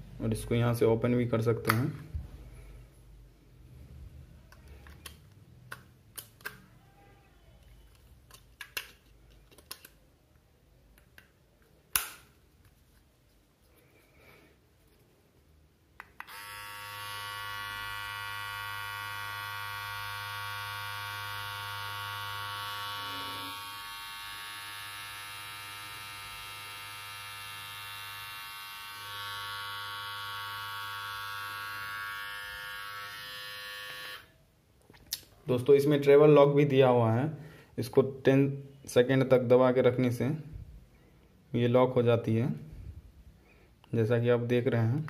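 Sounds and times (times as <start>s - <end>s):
beard trimmer buzzing: 16.2s - 34.3s.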